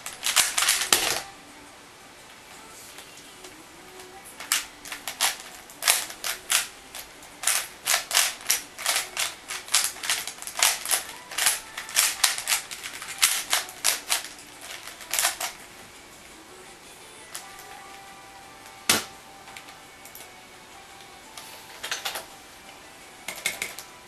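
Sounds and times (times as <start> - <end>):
puzzle cube layers clicking: 0.0 - 1.3, 4.0 - 15.6.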